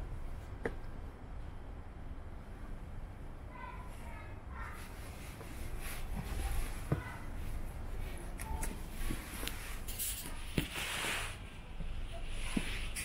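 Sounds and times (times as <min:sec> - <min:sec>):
steady low rumble: 0:00.0 - 0:13.0
footsteps walking: 0:04.8 - 0:13.0.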